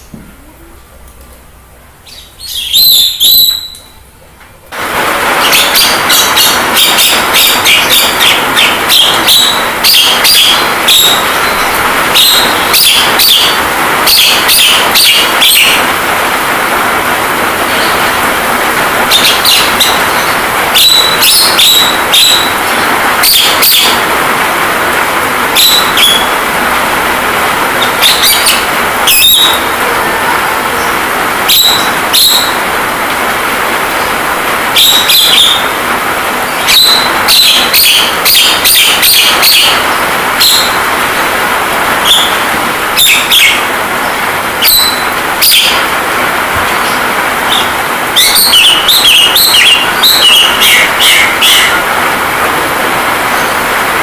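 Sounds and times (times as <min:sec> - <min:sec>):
rain hiss: 0:00.0 - 0:54.0
bird chirps: 0:02.0 - 0:04.0, 0:05.4 - 0:15.9, 0:19.1 - 0:24.1, 0:25.6 - 0:26.4, 0:27.8 - 0:29.8, 0:31.5 - 0:32.6, 0:34.8 - 0:35.7, 0:36.5 - 0:40.9, 0:43.0 - 0:43.7, 0:44.6 - 0:45.9, 0:46.8 - 0:51.8.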